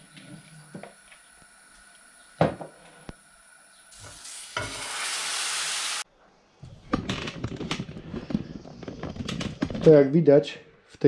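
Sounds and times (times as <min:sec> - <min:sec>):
batter sizzling in frying pan: 0:03.2 - 0:06.1.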